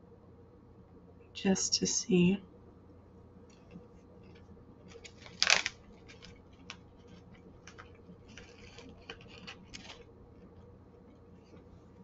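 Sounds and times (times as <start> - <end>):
peanut being chewed crunching: 3.6 - 11.7
plastic snack bag crinkling: 4.8 - 11.6.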